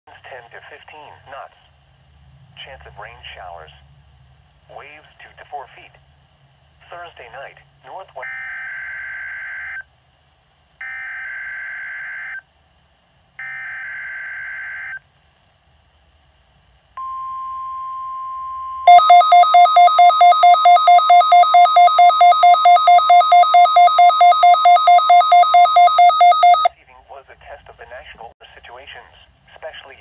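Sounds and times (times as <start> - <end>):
steady single tone: 17.0 - 26.6
fast-pulsing alarm beep: 17.0 - 26.7.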